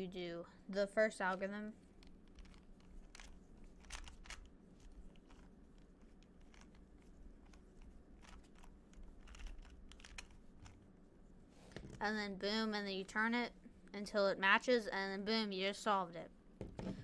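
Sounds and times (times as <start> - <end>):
puzzle cube plastic clicks: 2.0 - 10.8.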